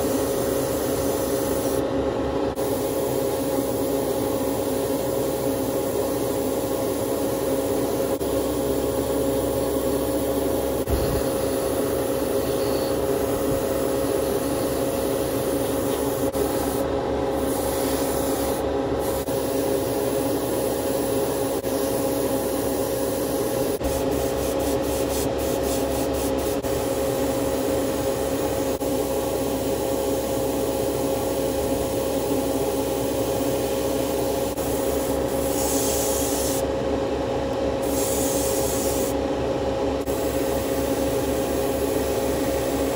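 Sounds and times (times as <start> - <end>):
airbrush air rushing: 0.0 - 1.8, 10.8 - 26.7, 34.1 - 36.7, 37.8 - 39.2
motor tone: 10.9 - 15.4.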